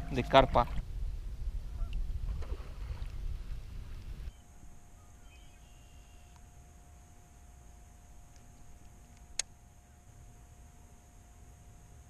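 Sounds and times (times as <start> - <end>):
steady thin hum: 0.0 - 12.0.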